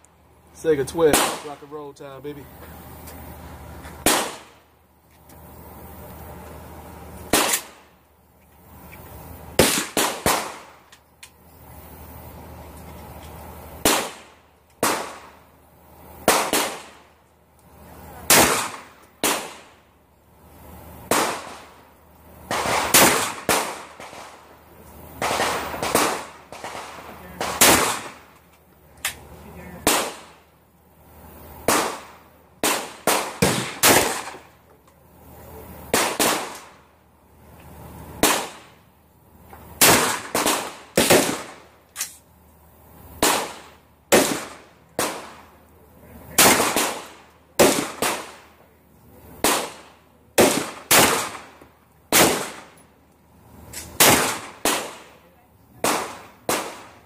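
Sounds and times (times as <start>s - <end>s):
shotgun shots echoing: 1.0s - 1.9s, 4.0s - 4.6s, 7.3s - 7.9s, 9.6s - 10.9s, 13.8s - 15.4s, 16.2s - 17.1s, 18.2s - 19.8s, 21.1s - 21.8s, 22.5s - 24.4s, 25.2s - 28.4s, 29.8s - 30.4s, 31.6s - 34.5s, 35.9s - 36.8s, 38.2s - 38.8s, 39.8s - 41.7s, 43.2s - 45.4s, 46.3s - 48.4s, 49.4s - 52.8s, 53.8s - 55.2s, 55.8s - 57.0s.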